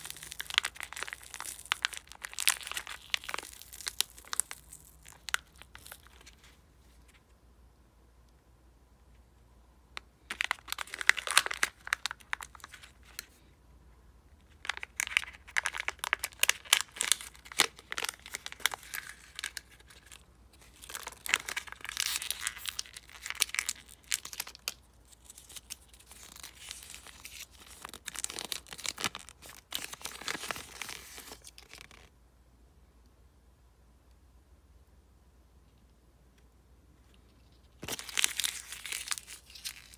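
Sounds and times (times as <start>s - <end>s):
plastic crinkling: 0.0s - 7.2s, 10.2s - 13.4s, 14.4s - 32.1s, 37.3s - 39.9s.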